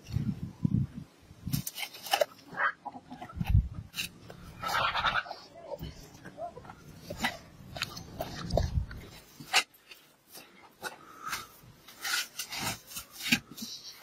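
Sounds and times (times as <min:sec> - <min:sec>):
wicker basket rustling and scraping: 0:03.2 - 0:14.0.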